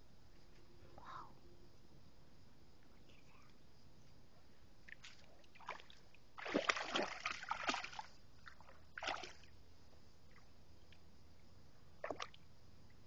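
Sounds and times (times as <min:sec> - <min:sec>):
dog splashing through water: 0:06.4 - 0:08.1.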